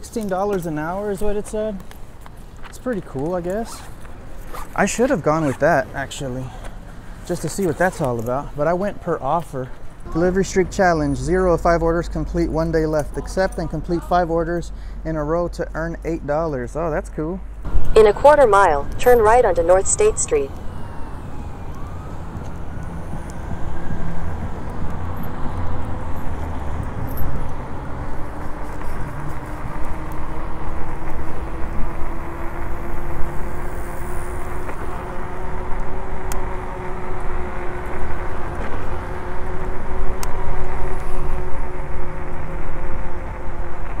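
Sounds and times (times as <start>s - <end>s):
road rumble: 0.0s - 44.0s
electric motor whine: 19.0s - 27.0s, 27.8s - 44.0s.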